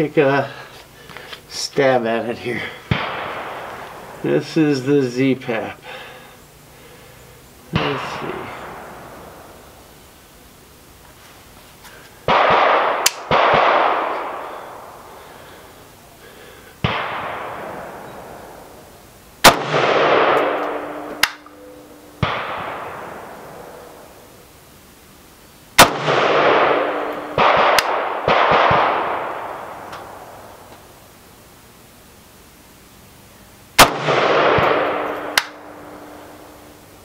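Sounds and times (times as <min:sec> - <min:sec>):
rifle shots echoing: 0:02.6 - 0:04.4, 0:07.7 - 0:09.8, 0:12.2 - 0:15.1, 0:16.8 - 0:24.3, 0:25.8 - 0:30.7, 0:33.8 - 0:36.8.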